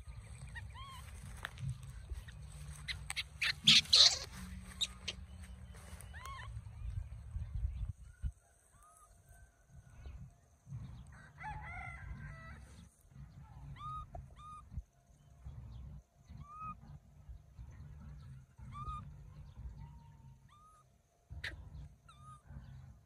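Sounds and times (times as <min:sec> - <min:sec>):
wind rumble on microphone: 0:05.3 - 0:08.5.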